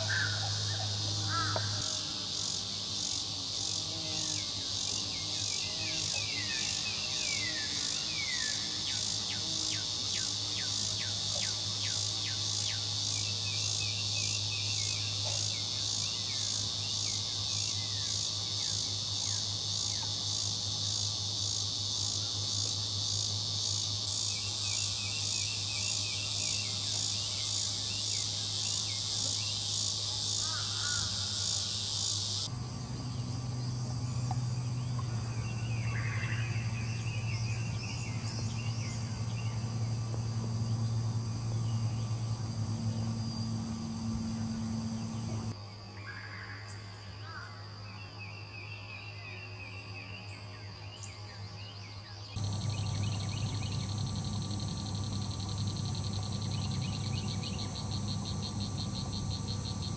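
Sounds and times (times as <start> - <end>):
insect chorus buzzing: 0.0 - 59.9
low drone: 32.4 - 45.6, 52.4 - 59.9.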